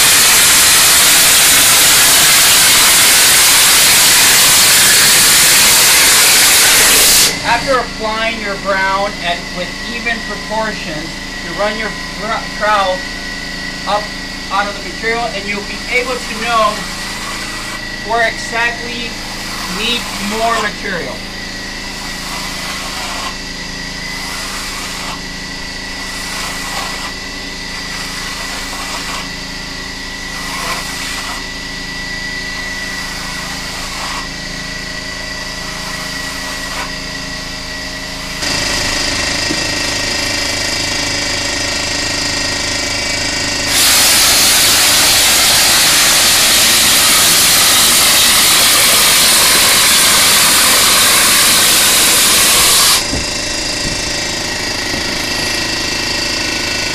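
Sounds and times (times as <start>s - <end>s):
hopper gun spraying mortar: 0.0s - 7.8s, 15.3s - 37.1s, 43.6s - 55.6s
air compressor running: 0.0s - 56.9s.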